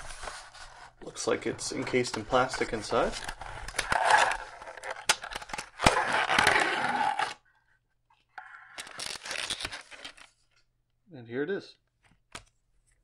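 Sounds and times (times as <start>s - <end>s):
plastic packaging scraping cardboard: 5.8s - 7.4s.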